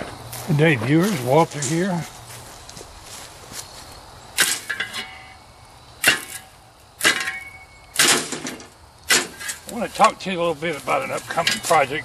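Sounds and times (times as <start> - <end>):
metal shovel clanking on metal: 4.4 - 5.4, 6.0 - 12.0.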